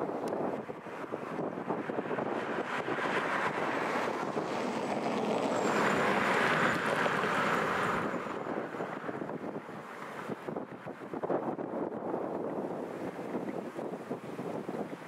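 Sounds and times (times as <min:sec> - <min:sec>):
jet engines rushing past: 0:00.0 - 0:11.1
wind buffeting microphone: 0:00.0 - 0:15.0.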